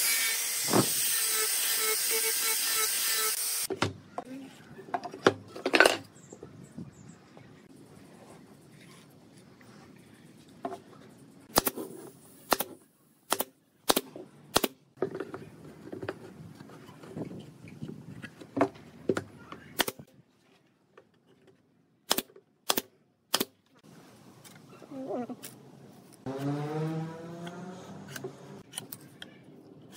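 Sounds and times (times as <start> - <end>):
nail gun firing into wood: 22.1 - 23.5.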